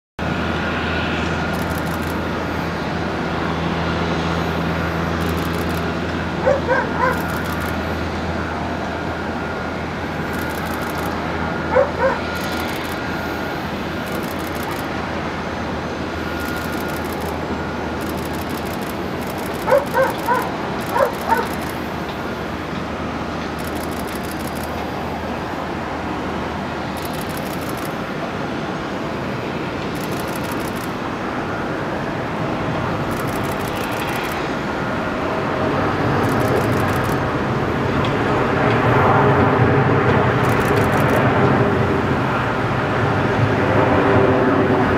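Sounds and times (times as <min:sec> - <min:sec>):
jet engines rumbling: 0:00.2 - 0:44.9
dog barking: 0:06.4 - 0:07.4, 0:11.7 - 0:12.2, 0:19.6 - 0:21.6.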